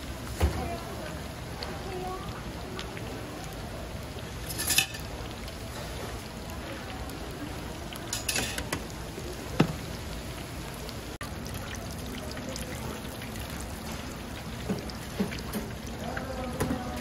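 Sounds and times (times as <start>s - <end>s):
food deep-frying in oil: 0.0s - 17.0s
metal tongs clinking on wire rack: 4.5s - 5.1s, 8.1s - 8.7s.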